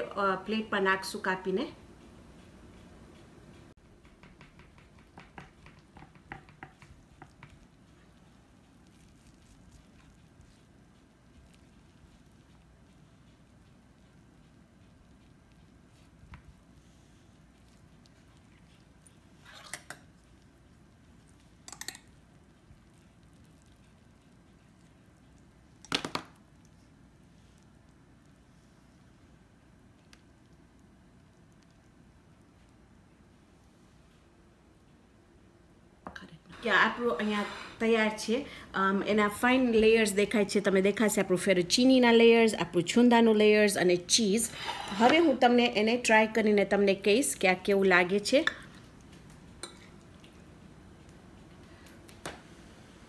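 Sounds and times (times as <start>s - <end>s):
utensils scraping glass dish: 44.5s - 45.4s.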